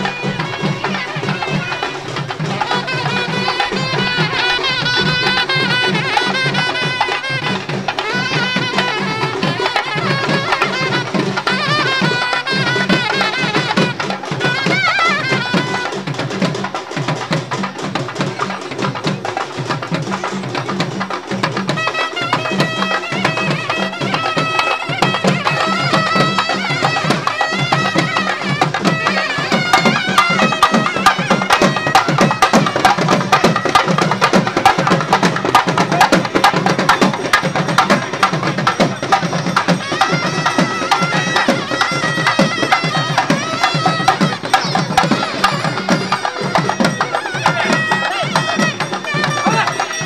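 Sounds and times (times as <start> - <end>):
fast driving drumming: 0.0 - 50.0
high melody with bending notes: 22.0 - 50.0.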